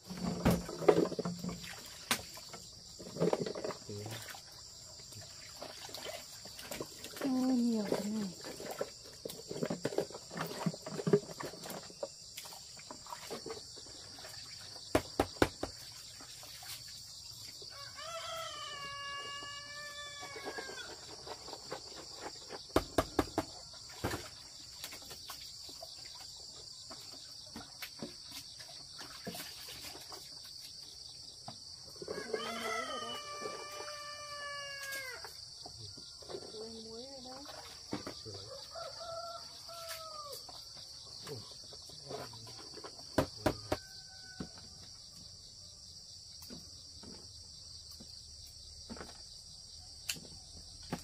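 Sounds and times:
high insect drone: 0:00.0 - 0:23.5, 0:29.7 - 0:51.0
rooster crowing: 0:17.7 - 0:20.9, 0:32.0 - 0:35.3, 0:38.4 - 0:40.5, 0:43.6 - 0:44.7.

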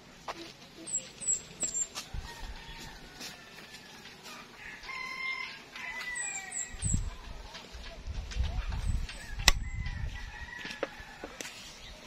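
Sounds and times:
rooster crowing: 0:02.2 - 0:06.8, 0:09.3 - 0:11.4.

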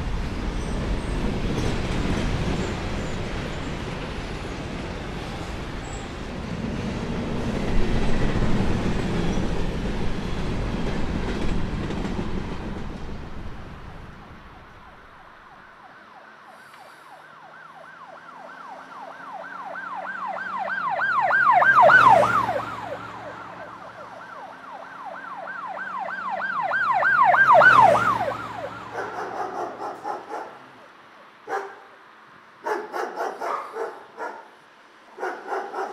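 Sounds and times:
passing traffic rumble: 0:00.0 - 0:35.9
emergency vehicle siren yelping: 0:14.8 - 0:30.5.

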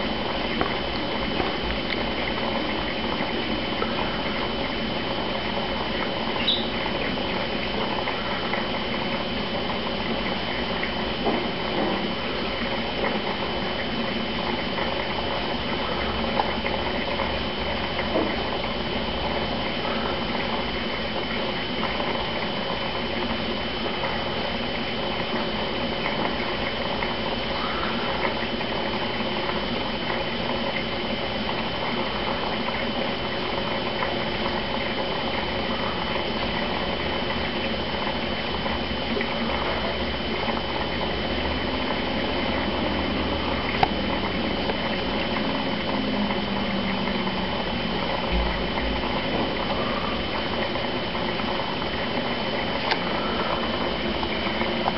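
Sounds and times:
aquarium filter water bubbling: 0:00.0 - 0:54.9
thin high whine: 0:06.3 - 0:07.0.

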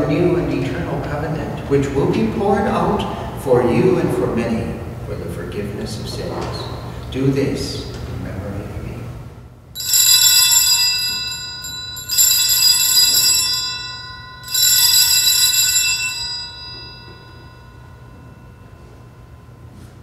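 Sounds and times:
altar bells ringing: 0:09.8 - 0:20.0.

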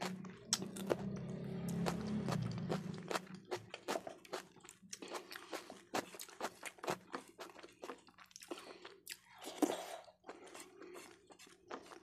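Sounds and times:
chewing with wet smacks: 0:00.0 - 0:12.0.

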